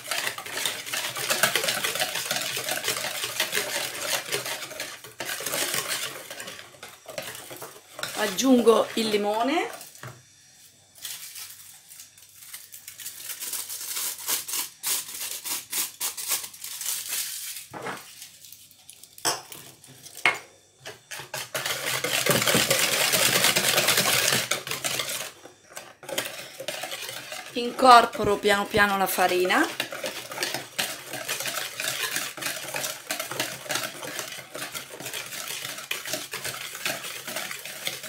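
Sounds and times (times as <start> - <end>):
whisk beating batter in bowl: 0.0 - 10.0, 20.2 - 38.0
utensils knocking and scraping: 0.0 - 10.1, 20.2 - 38.0.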